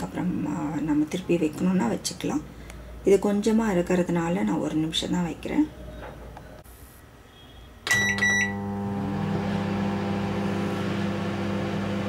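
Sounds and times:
microwave beep: 0:07.8 - 0:09.8
microwave oven humming: 0:07.9 - 0:12.0.

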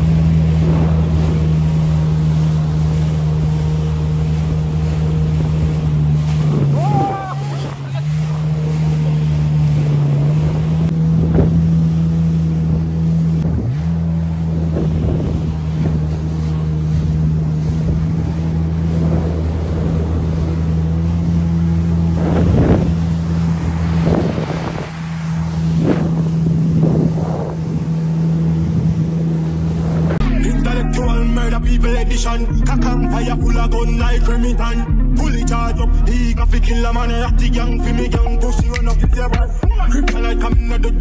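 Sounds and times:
wind noise on microphone: 0:00.0 - 0:08.4, 0:09.1 - 0:30.2
jet ski engine running: 0:00.0 - 0:41.0
water splashes: 0:00.0 - 0:41.0.

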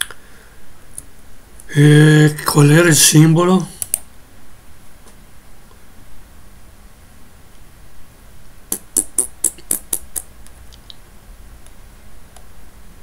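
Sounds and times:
sharp computer clicks: 0:03.8 - 0:04.1, 0:08.7 - 0:11.0.

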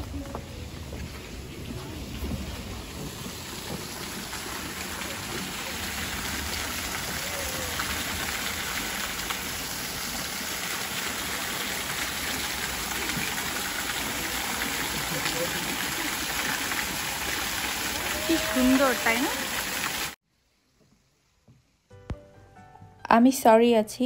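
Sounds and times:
water splashing into a rock pool: 0:02.0 - 0:20.2.

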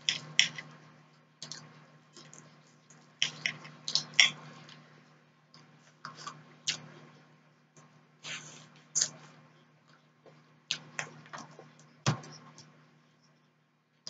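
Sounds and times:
chewing sounds: 0:10.7 - 0:11.7.

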